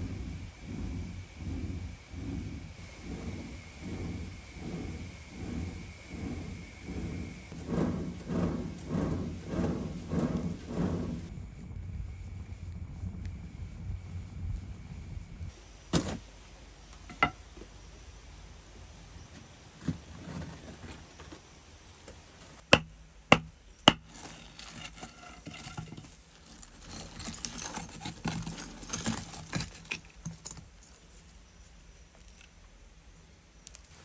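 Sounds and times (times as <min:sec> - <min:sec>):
slag scraping and crumbling: 0:00.0 - 0:11.3, 0:23.9 - 0:31.0
charcoal fire rumbling: 0:00.0 - 0:31.2
sharp knocks on clay furnace: 0:22.7 - 0:24.1.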